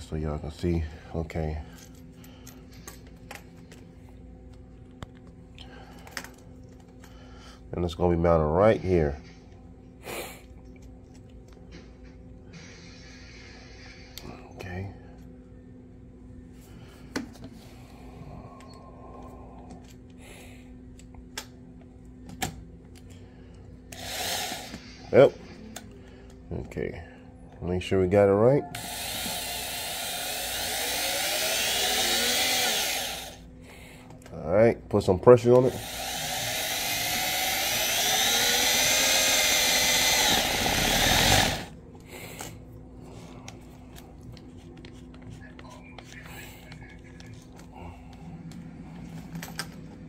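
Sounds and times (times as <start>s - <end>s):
steady low hum: 0.0s - 50.0s
cordless drill motor whining: 23.9s - 25.1s, 28.7s - 33.4s, 35.6s - 41.7s.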